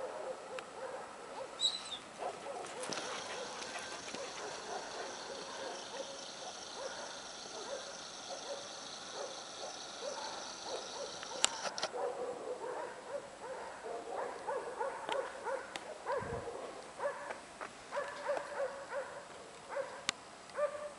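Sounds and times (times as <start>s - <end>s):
dog screaming and whining: 2.6s - 11.8s.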